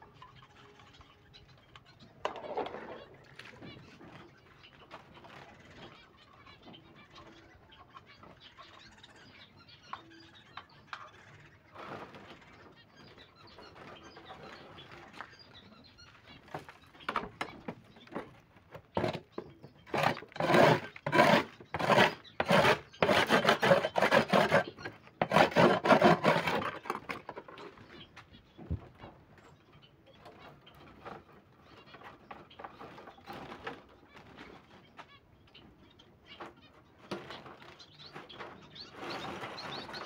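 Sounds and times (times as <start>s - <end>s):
metal trowel scraping board: 19.0s - 19.2s, 19.9s - 27.4s.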